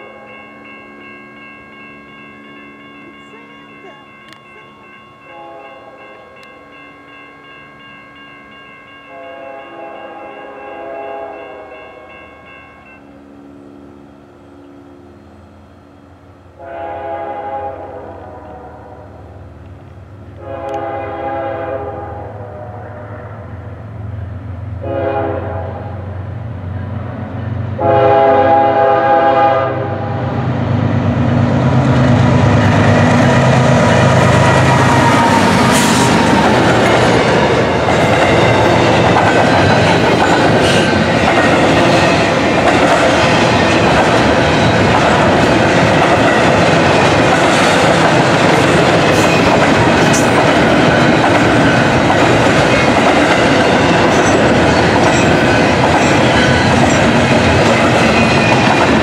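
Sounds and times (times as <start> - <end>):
low locomotive engine rumble: 0.0 - 59.0
locomotive horn blasts: 5.2 - 6.5, 9.1 - 12.4, 16.6 - 19.3, 20.4 - 23.8, 24.8 - 26.1, 27.8 - 30.2
train cars clattering over rails: 31.4 - 59.0.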